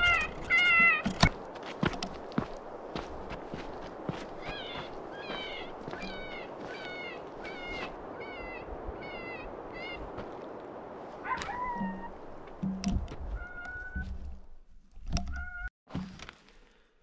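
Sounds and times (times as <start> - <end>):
rabbit distress cries from caller: 0.0 - 1.1, 4.5 - 10.1, 11.2 - 12.1, 13.4 - 14.1.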